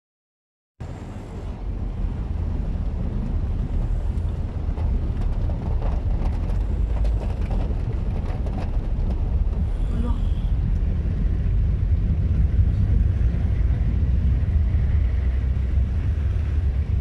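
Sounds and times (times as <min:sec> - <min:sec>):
car cabin low rumble: 0:00.8 - 0:17.0
rain ticking on car: 0:01.8 - 0:13.5.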